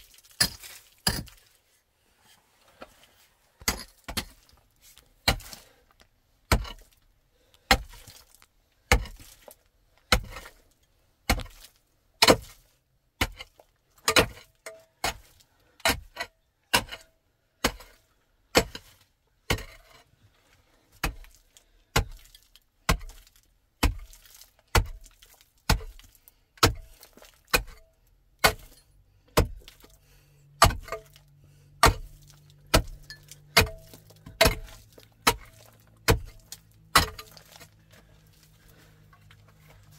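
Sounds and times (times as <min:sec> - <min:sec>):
pickaxe striking hard earth: 0:00.0 - 0:01.4, 0:03.6 - 0:04.5, 0:05.2 - 0:05.8, 0:06.5 - 0:07.0, 0:07.7 - 0:08.3, 0:08.9 - 0:10.6, 0:11.2 - 0:12.6, 0:13.2 - 0:17.0, 0:17.6 - 0:19.9, 0:21.0 - 0:27.8, 0:28.4 - 0:30.0, 0:30.6 - 0:38.4.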